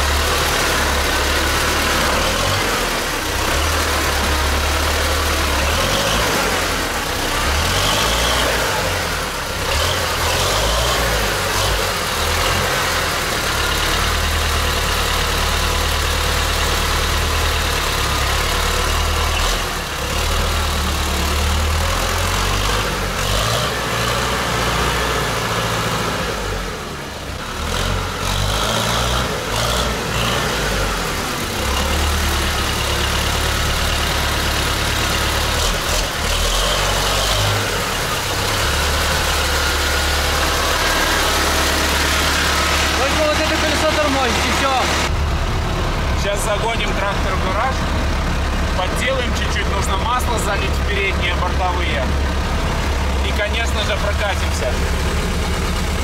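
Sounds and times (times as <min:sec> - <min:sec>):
diesel tractor engine running: 0:00.0 - 0:56.0.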